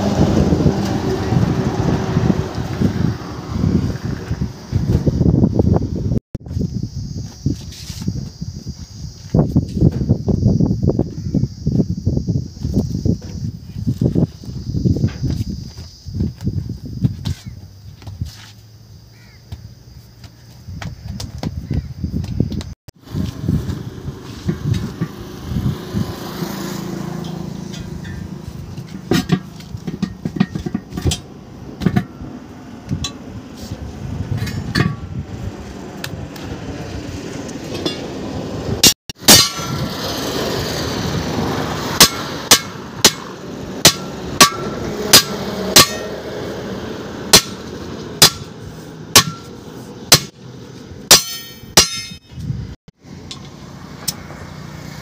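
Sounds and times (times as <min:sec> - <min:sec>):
hammer striking steel rim: 0:27.1 - 0:32.2, 0:38.8 - 0:39.9, 0:42.0 - 0:46.2, 0:47.3 - 0:50.4, 0:51.1 - 0:52.3.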